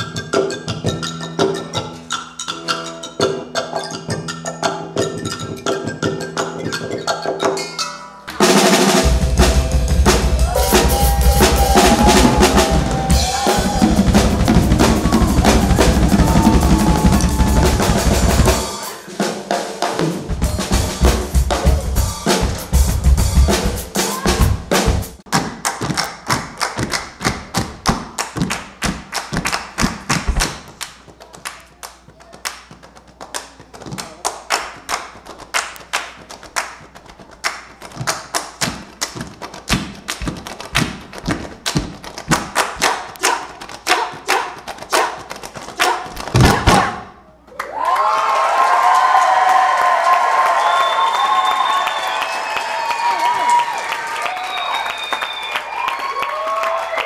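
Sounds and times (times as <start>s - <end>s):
drum kit played hard: 8.3s - 25.2s.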